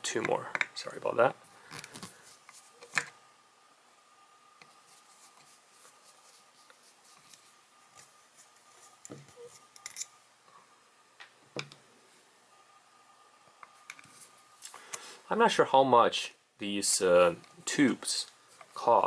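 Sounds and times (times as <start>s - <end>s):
screwdriver metallic clicks and scrapes: 9.4s - 10.1s.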